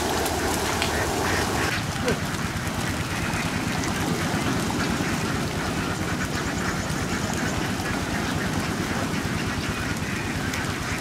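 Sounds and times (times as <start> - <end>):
ducks quacking: 0.3 - 11.0.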